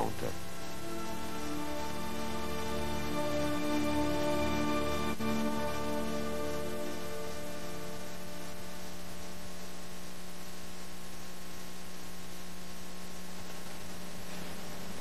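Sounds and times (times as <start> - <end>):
music: 0.0 - 9.8
electrical mains hum: 0.0 - 15.0
recording hiss: 0.0 - 15.0.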